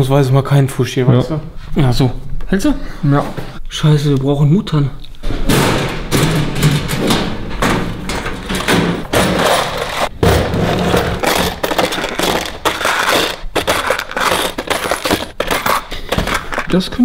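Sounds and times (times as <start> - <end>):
heavy thump: 5.2 - 11.2
rummaging clatter of metal parts: 5.2 - 17.0.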